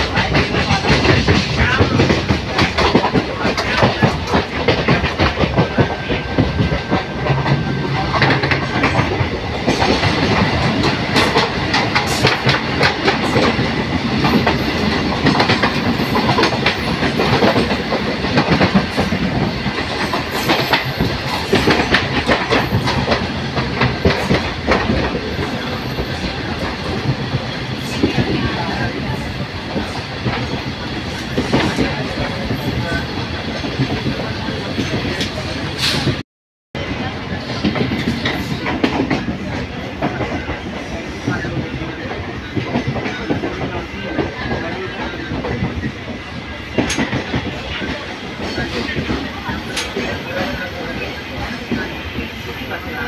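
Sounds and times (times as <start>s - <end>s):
wheels clacking over rail joints: 0.0s - 36.0s
freight train passing: 0.0s - 36.2s, 36.8s - 53.0s
train running noise: 0.0s - 36.2s, 36.8s - 53.0s.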